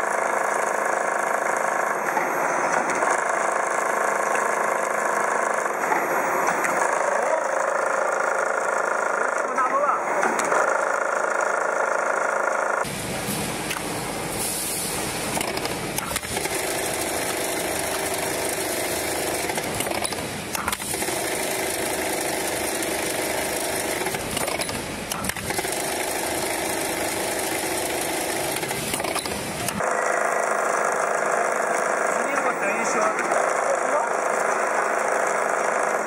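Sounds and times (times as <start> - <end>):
machine running: 0.0 - 36.0
sharp machine clicks: 15.3 - 36.0.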